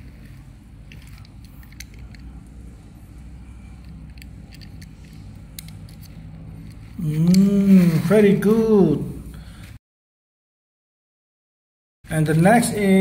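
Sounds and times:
low steady hum: 0:00.0 - 0:09.8
toy truck clicks and taps: 0:03.8 - 0:06.9.

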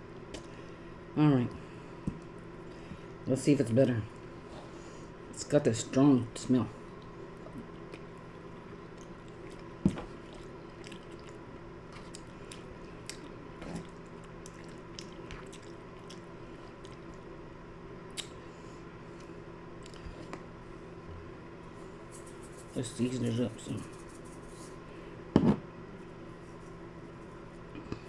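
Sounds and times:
chewing and wet mouth sounds: 0:06.8 - 0:17.4, 0:18.1 - 0:18.4, 0:19.1 - 0:20.4.

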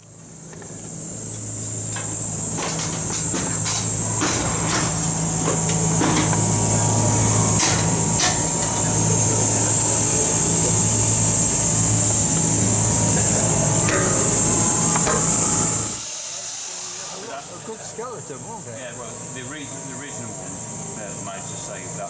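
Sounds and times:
low machine hum: 0:00.0 - 0:16.1, 0:17.3 - 0:22.0
high whine: 0:00.0 - 0:16.2.

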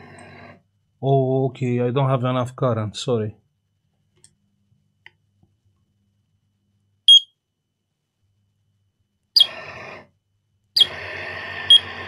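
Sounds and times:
keypad beep: 0:07.1 - 0:07.3
electric drive motor running: 0:10.8 - 0:12.0.

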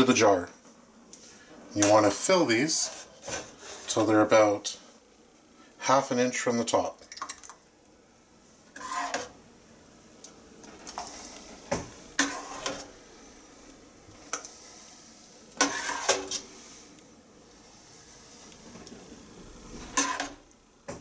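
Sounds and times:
metal ladle scraping a pot: 0:08.7 - 0:09.4, 0:12.2 - 0:12.9, 0:15.6 - 0:16.5, 0:19.8 - 0:20.4.

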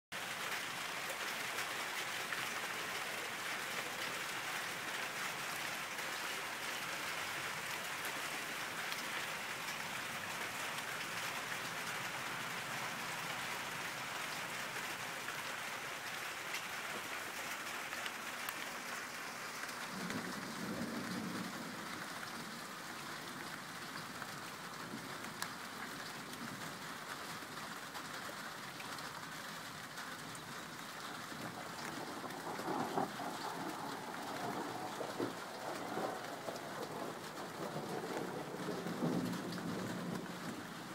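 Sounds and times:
steady rain hiss: 0:00.2 - 0:40.9
low thunder rumble: 0:19.9 - 0:21.8, 0:31.4 - 0:40.8.

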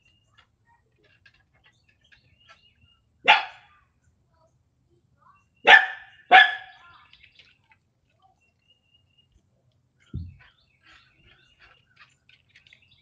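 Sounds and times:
dog barking: 0:03.2 - 0:03.7, 0:05.6 - 0:06.8.

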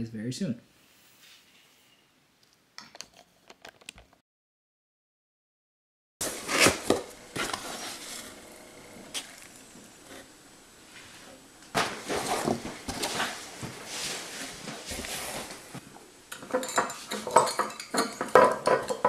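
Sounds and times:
knocks clicks and rustles handling: 0:02.8 - 0:04.2, 0:06.2 - 0:08.5, 0:11.6 - 0:19.0.

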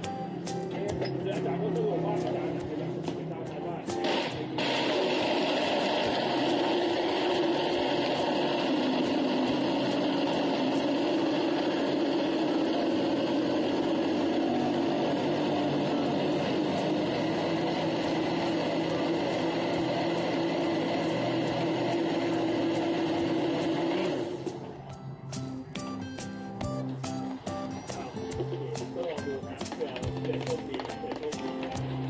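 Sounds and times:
electric blender running: 0:04.0 - 0:24.6.

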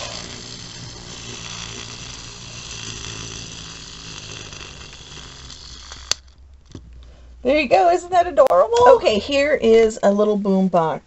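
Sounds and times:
clockwork motor whirring: 0:00.0 - 0:06.4.

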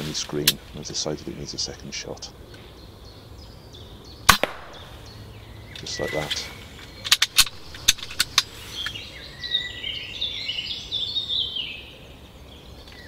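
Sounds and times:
bird chirping: 0:00.0 - 0:13.0
sharp clicks: 0:05.7 - 0:09.0.

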